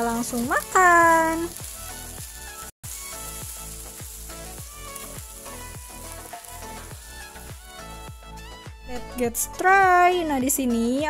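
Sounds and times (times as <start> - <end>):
beef sizzling in a frying pan: 0.0 - 8.6
background music with steady beat: 0.0 - 11.0.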